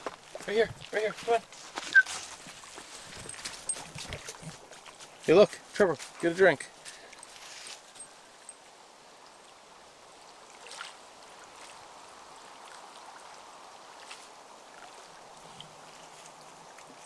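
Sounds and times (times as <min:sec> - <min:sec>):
small waves lapping on shore: 0:00.0 - 0:17.0.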